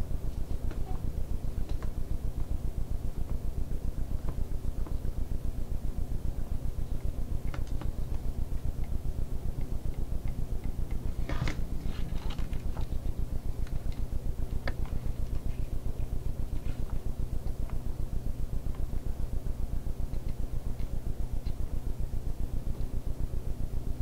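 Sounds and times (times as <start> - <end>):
soldering crackles and ticks: 6.9 - 11.1, 12.3 - 16.2, 16.8 - 17.9, 19.7 - 21.8.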